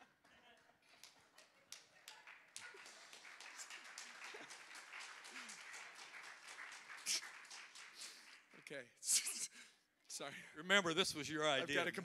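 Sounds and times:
crowd clapping: 0.0s - 8.8s
sharp clap: 1.0s - 9.4s
people laughing: 2.6s - 5.7s.

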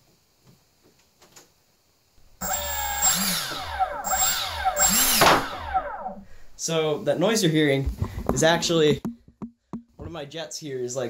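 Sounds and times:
electric ducted fan whine: 2.1s - 8.8s.

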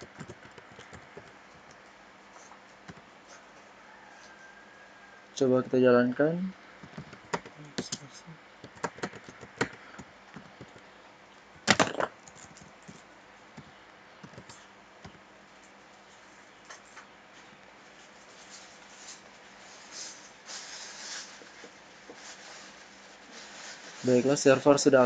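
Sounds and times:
keyboard typing: 0.0s - 1.8s, 6.8s - 8.0s, 8.6s - 10.9s, 13.6s - 15.2s
soft rustle: 17.3s - 24.5s.

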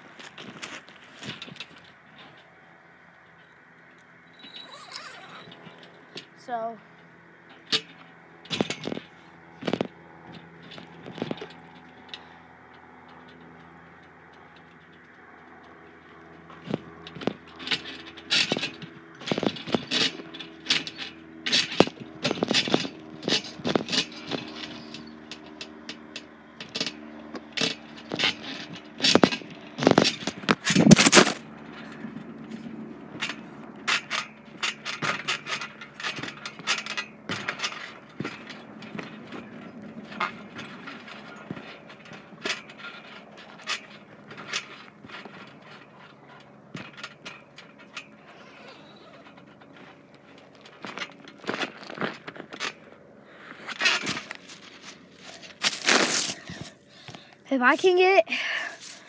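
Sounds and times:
metal springs rattling and creaking: 0.2s - 2.6s, 3.2s - 6.8s, 7.4s - 59.0s
trampoline mat thumps: 16.6s - 24.7s, 27.6s - 31.4s, 33.9s - 45.8s.

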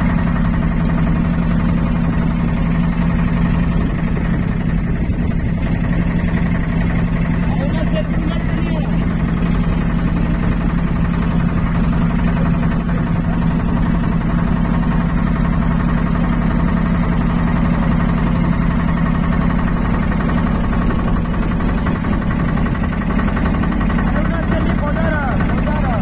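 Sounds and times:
motorboat engine running: 0.0s - 26.0s.

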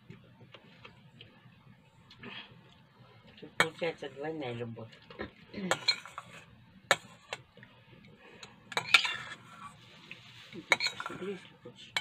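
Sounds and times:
metal spoon scraping steel bowl: 5.7s - 7.4s, 8.7s - 12.0s.

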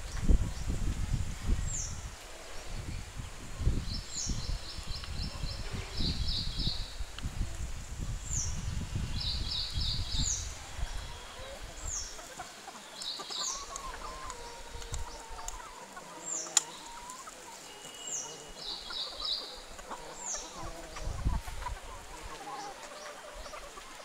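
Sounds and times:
hens clucking: 10.8s - 24.0s.

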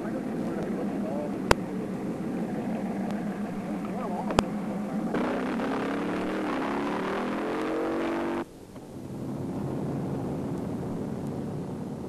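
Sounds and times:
car engine accelerating hard: 0.0s - 8.5s.

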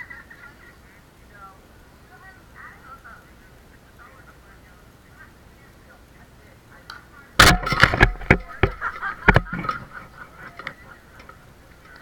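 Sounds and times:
voices calling out: 0.0s - 12.0s
loud sharp impacts: 7.4s - 10.0s.

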